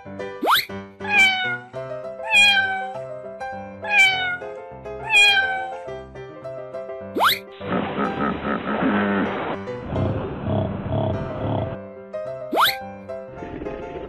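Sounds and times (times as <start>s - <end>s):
background music: 0.0s - 14.0s
cartoon cat meowing: 0.4s - 3.1s, 3.8s - 5.8s.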